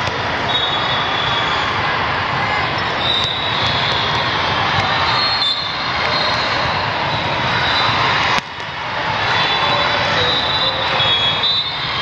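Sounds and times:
crowded sports hall din: 0:00.0 - 0:12.0.

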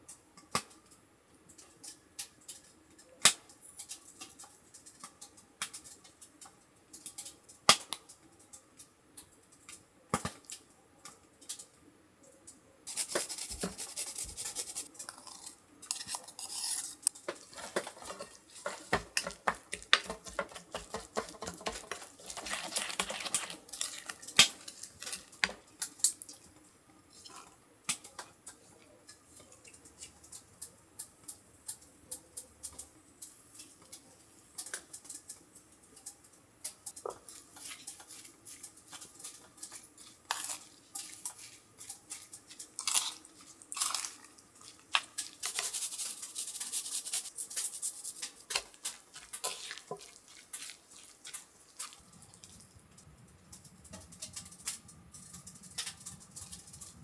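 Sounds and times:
scraping and stirring dishes: 0:12.9 - 0:57.0.

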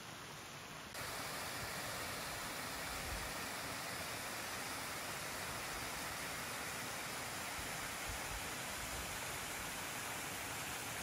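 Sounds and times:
water rushing over weirs: 0:00.7 - 0:11.0.

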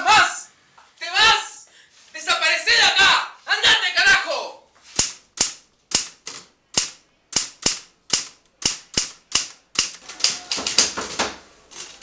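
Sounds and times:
typewriter keys striking: 0:05.0 - 0:12.0.

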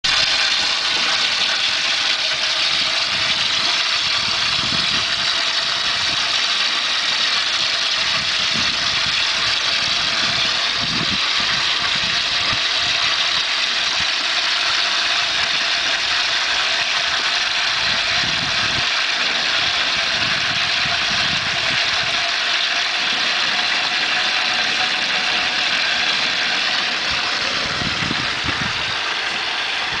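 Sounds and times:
oil sizzling in a deep fryer: 0:00.0 - 0:30.0
low rumbles: 0:26.9 - 0:30.0.

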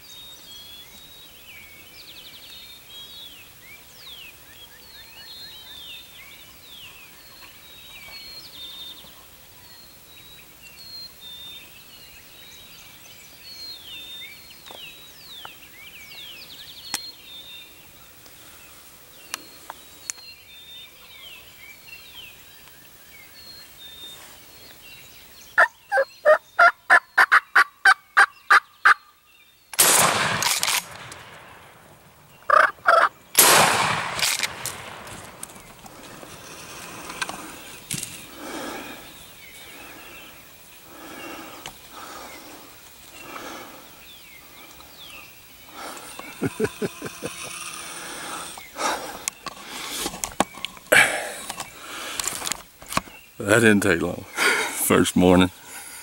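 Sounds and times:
songbird chirps: 0:00.0 - 0:29.8, 0:31.0 - 0:56.0
turkey yelping: 0:25.6 - 0:29.0, 0:32.5 - 0:33.1
shotgun firing: 0:29.8 - 0:31.6, 0:33.4 - 0:35.2.

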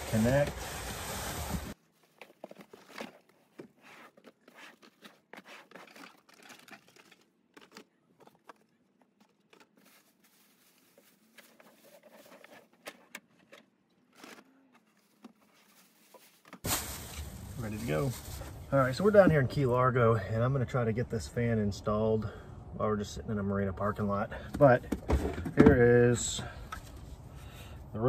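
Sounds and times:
plastic wrapping crinkling: 0:09.3 - 0:12.5, 0:14.9 - 0:18.6.

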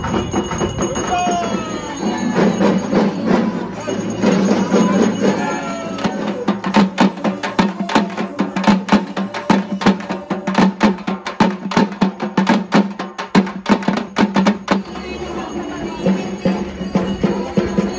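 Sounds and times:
people's voices: 0:00.0 - 0:12.4, 0:14.4 - 0:17.9
frame drums beaten fast: 0:00.0 - 0:17.9.

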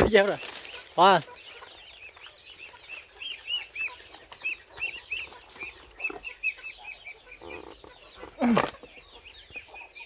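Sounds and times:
chicks peeping: 0:00.0 - 0:10.0.

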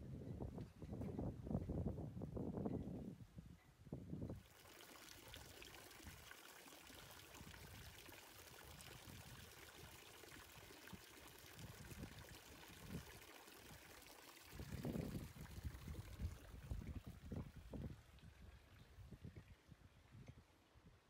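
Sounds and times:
fountain water splashing: 0:04.4 - 0:18.7.

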